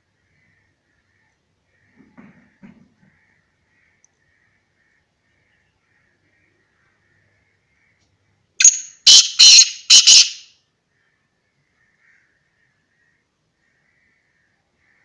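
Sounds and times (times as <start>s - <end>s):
bird harsh grating call: 8.6s - 10.5s.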